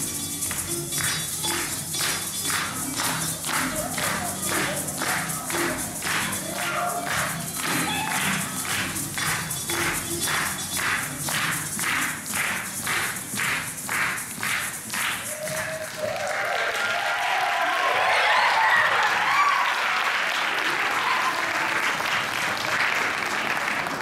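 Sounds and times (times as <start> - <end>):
music with a steady beat: 0.0 - 15.8
audience applause and cheers: 1.5 - 24.0.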